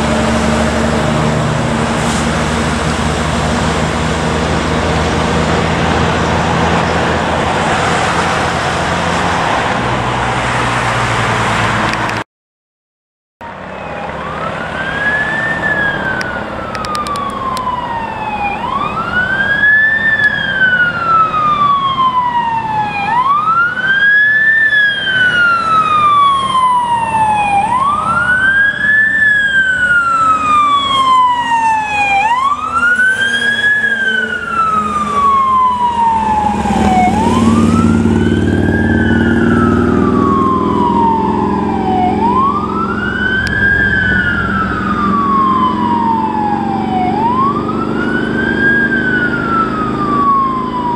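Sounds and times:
fire engine driving: 0:00.0 - 0:12.2, 0:13.4 - 0:50.9
road noise: 0:00.0 - 0:12.2, 0:13.4 - 0:50.9
siren wailing: 0:13.4 - 0:50.9.

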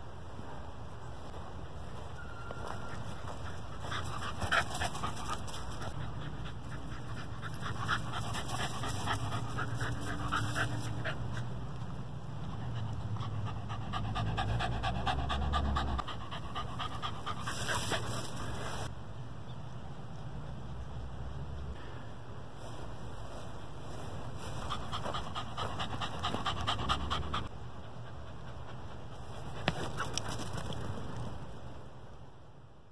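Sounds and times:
dog panting: 0:03.0 - 0:18.9, 0:24.4 - 0:30.6.

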